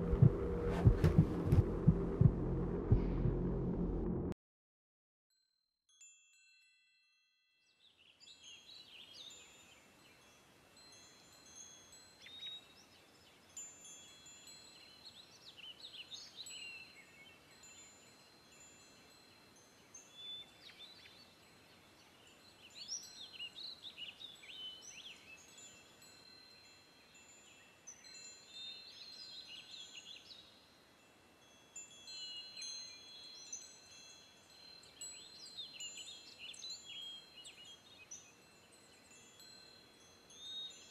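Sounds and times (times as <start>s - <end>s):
bell-like chime: 5.3s - 15.4s, 24.8s - 30.7s, 31.4s - 40.9s.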